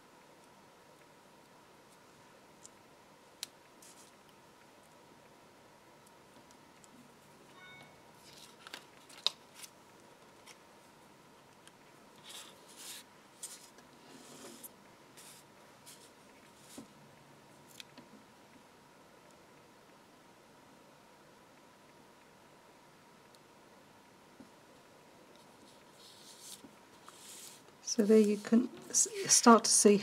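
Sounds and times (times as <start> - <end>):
faint high whine: 0.0 - 8.5
paper rustles: 8.2 - 9.7.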